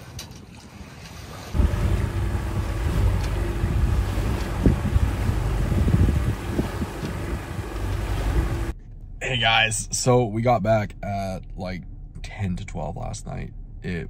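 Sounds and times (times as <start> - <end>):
water noise: 0.0 - 10.2
wind buffeting microphone: 1.6 - 8.8.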